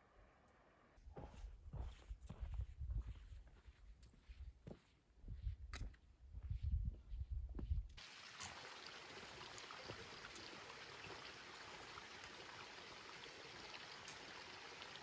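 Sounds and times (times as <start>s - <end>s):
stream running water: 8.0s - 15.0s.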